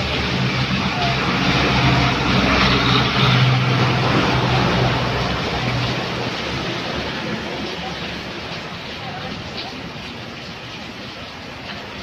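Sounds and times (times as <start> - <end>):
rain and tyres on wet asphalt: 0.0 - 12.0.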